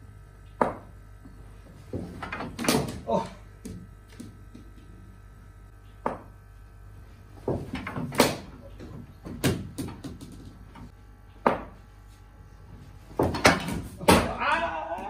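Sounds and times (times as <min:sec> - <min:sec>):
hard ball knocking: 0:00.6 - 0:01.0, 0:06.0 - 0:06.4, 0:11.4 - 0:11.8.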